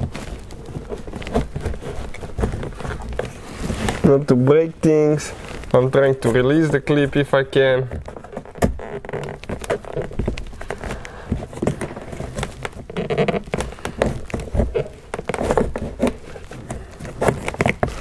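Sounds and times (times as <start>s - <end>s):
plastic trim clicking and creaking: 6.3s - 18.0s.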